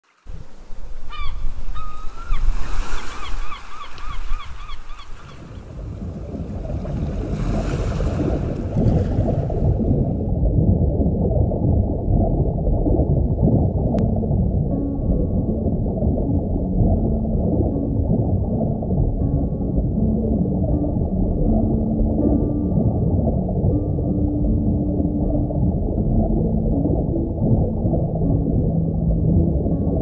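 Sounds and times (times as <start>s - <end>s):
wind: 0.0s - 9.7s
ocean waves: 0.0s - 9.8s
underwater rumble: 0.1s - 30.0s
bird calling: 1.1s - 5.7s.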